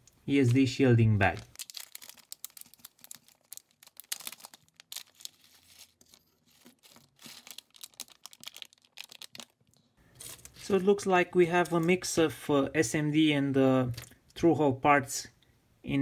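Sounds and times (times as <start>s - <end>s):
plastic bag crinkling: 1.2s - 10.8s.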